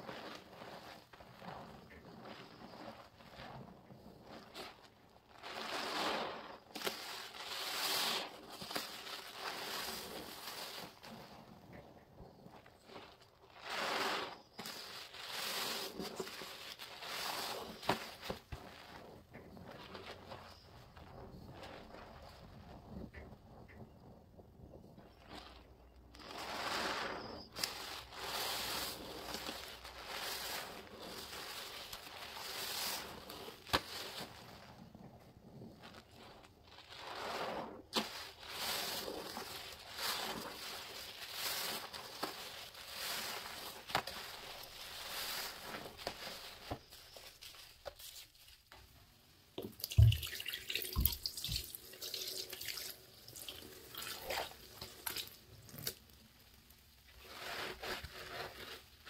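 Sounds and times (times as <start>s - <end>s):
foam crackling: 0.0s - 59.0s
wet sponge squeezing in soapy water: 0.0s - 59.0s
water streaming into basin: 49.6s - 55.4s.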